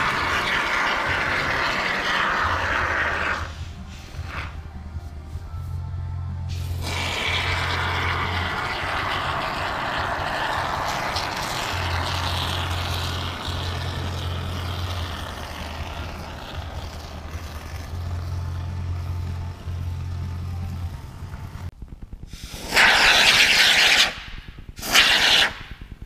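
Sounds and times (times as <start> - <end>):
background music with deep bass: 0.0 - 23.4
aerosol foam spraying hiss: 6.5 - 13.9, 24.8 - 25.7.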